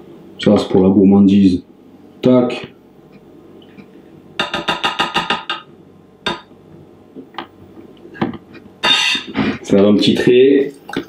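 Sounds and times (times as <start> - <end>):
metal spoon scraping a bowl: 8.8 - 9.3.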